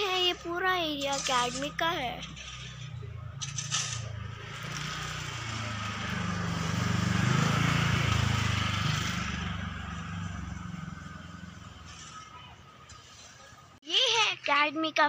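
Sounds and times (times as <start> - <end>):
vehicle passing by: 1.7 - 13.3.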